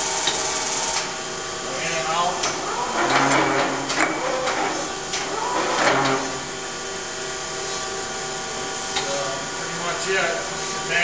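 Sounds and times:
grinder rushing: 0.0 - 7.2
surface grinder machine hum: 0.0 - 11.0.

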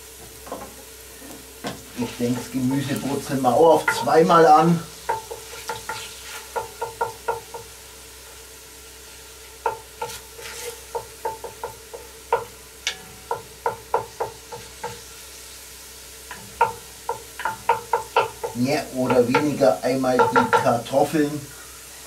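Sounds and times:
faint sizzle: 0.0 - 22.0
wooden spatula scraping a pot: 1.2 - 6.7, 10.0 - 11.0.

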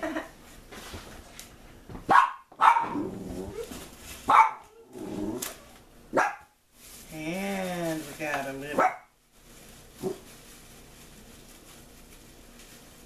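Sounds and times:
dogs barking: 2.1 - 3.1, 4.3 - 4.8, 6.1 - 6.5, 8.7 - 9.1.

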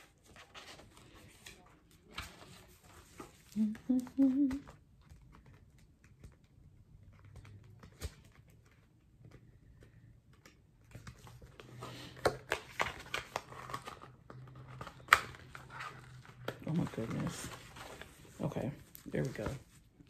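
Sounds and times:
paper and fabric rustling: 15.5 - 20.0.

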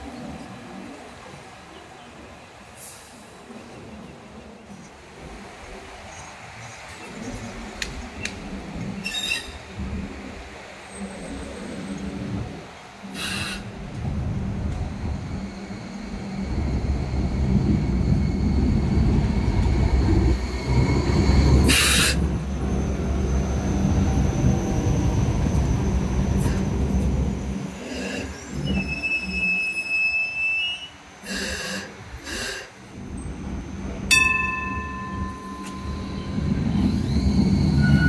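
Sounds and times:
train wheels rumbling: 4.6 - 38.0
wheels squealing on curve: 28.1 - 31.0, 36.0 - 38.0
sharp metallic ring: 34.1 - 36.0.

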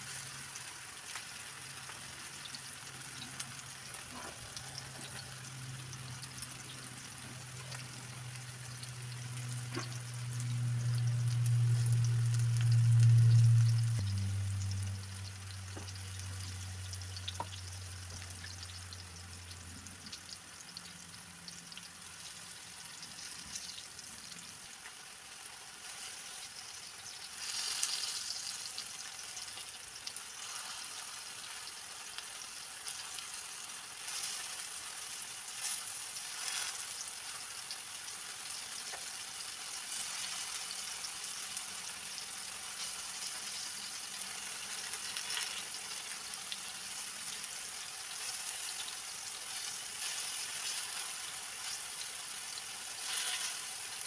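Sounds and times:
slices sizzling in oil: 0.0 - 54.0
low hum: 4.1 - 20.1.

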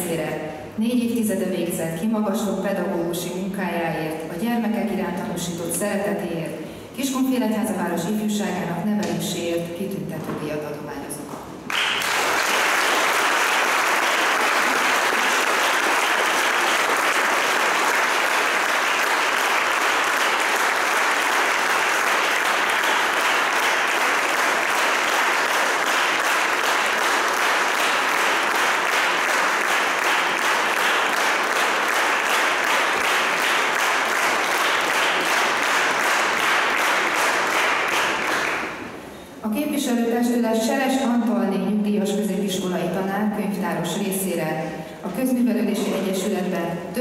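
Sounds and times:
audience applauding: 11.7 - 38.9.

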